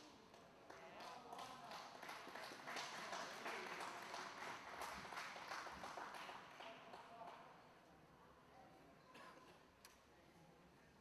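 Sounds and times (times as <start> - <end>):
spectators applauding: 1.4 - 6.7.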